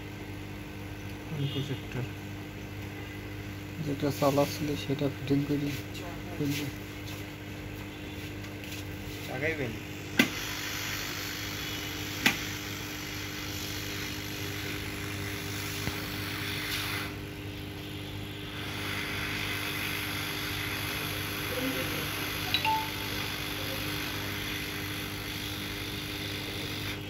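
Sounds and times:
hot-air gun blowing: 10.2s - 17.2s, 18.4s - 22.6s.

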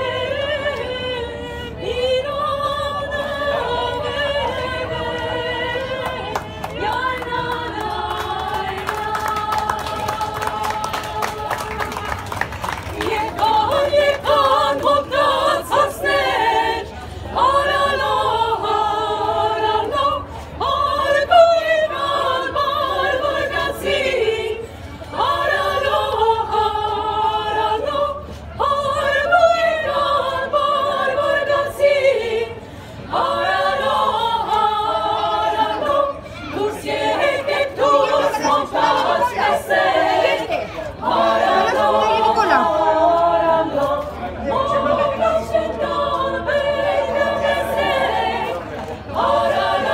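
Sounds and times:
girls' choir singing: 0.0s - 49.9s.

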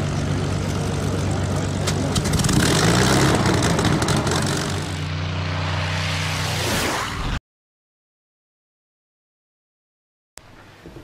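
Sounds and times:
piston aircraft engine running: 0.0s - 7.4s.

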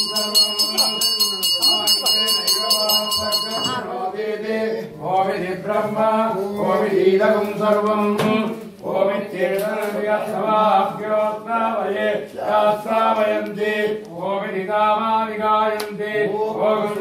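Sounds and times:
men chanting: 0.0s - 17.0s.

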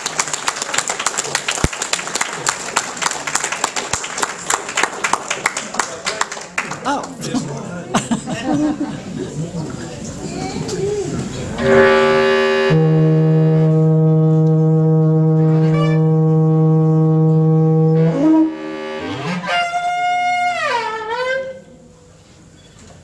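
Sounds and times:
bass clarinet: 11.6s - 21.9s
conch shell blowing: 11.6s - 21.9s.

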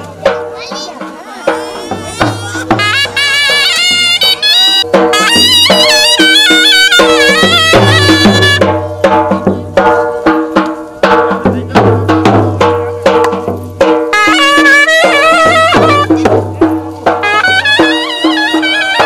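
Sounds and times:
drum beat: 0.0s - 19.0s
wind instrument melody: 0.7s - 9.4s, 13.8s - 19.0s.

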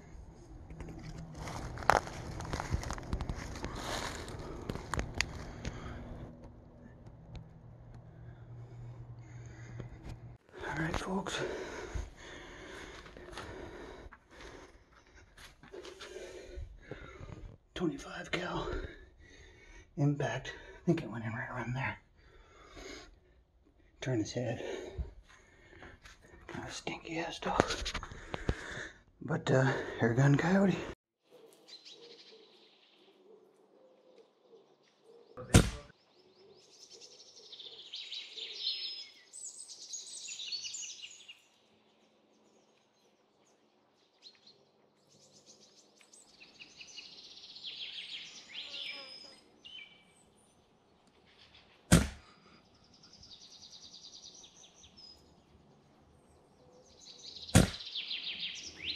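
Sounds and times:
small birds chirping: 2.5s - 58.9s
air rifle shots: 35.4s - 35.9s.

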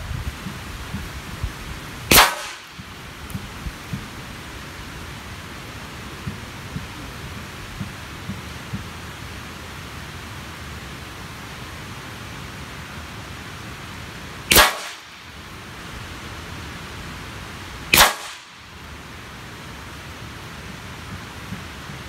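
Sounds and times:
air rifle shots: 2.1s - 2.9s, 14.5s - 15.2s, 17.9s - 18.6s.

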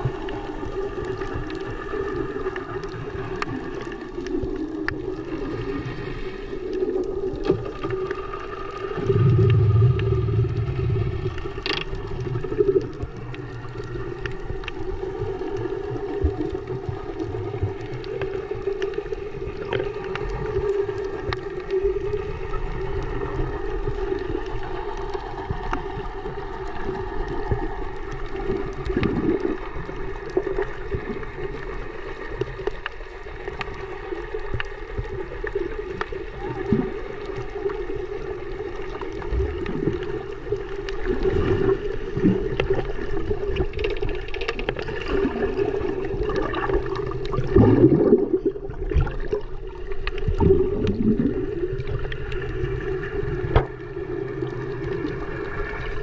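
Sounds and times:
muffled underwater noise: 0.0s - 56.0s
water gurgles and bumps: 0.0s - 56.0s
steady low hum: 9.0s - 11.7s.

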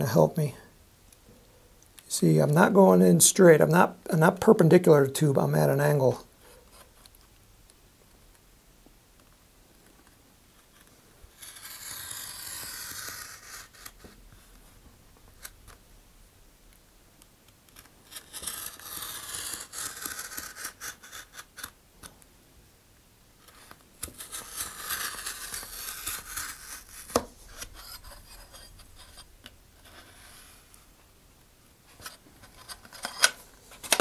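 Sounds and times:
knife blade cutting paper tube: 11.3s - 14.1s, 18.0s - 21.7s, 23.5s - 29.2s.

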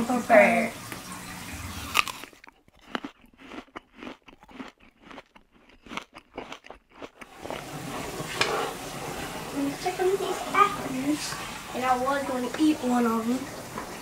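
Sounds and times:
crunching apple bites: 1.8s - 7.6s.

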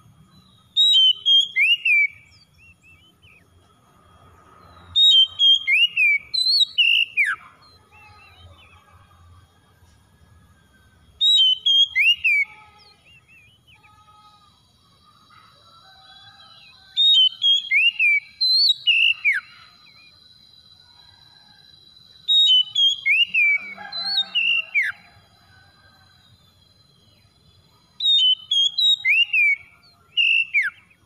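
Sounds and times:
faint bird chirps: 0.0s - 31.0s
songbird whistled phrases: 0.7s - 3.4s, 5.0s - 9.0s, 11.2s - 14.0s, 16.6s - 20.1s, 22.3s - 25.0s, 28.0s - 31.0s.

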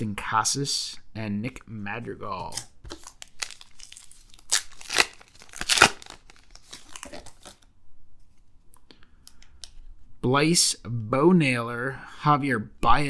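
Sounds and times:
wrapper ripping: 2.4s - 7.7s
wrapper crinkling: 2.5s - 7.7s
wrapper rustling: 2.9s - 7.7s.

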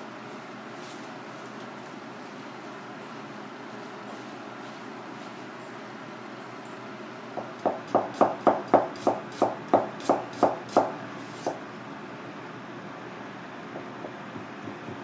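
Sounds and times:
knife chopping on cutting board: 7.6s - 11.6s.

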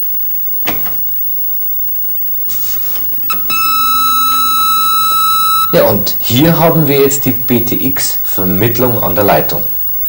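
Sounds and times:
high-pitched modem carrier tone: 1.2s - 10.0s.

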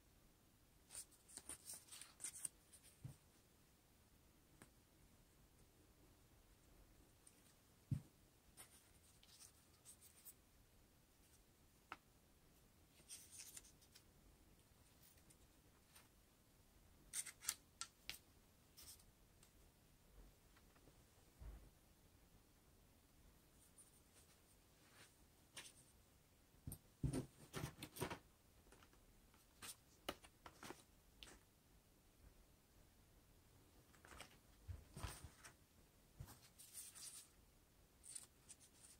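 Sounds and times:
paper rustling: 33.9s - 35.6s.

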